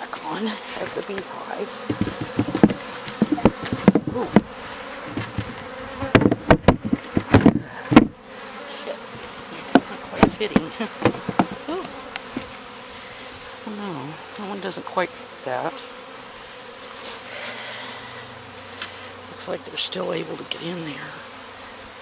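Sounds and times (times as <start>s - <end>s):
honeybees buzzing: 0.0s - 22.0s
wooden hive lid knocking: 0.8s - 8.2s, 9.0s - 12.5s.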